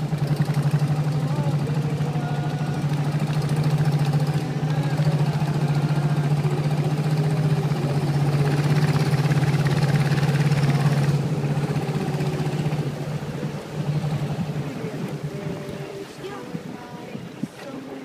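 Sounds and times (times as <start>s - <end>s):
boat engine pulsing: 0.0s - 18.0s.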